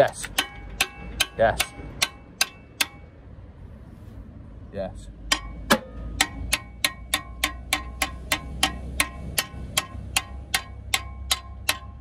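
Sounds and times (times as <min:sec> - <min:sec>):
metal bar knocking on metal: 0:00.0 - 0:03.1, 0:05.2 - 0:12.0.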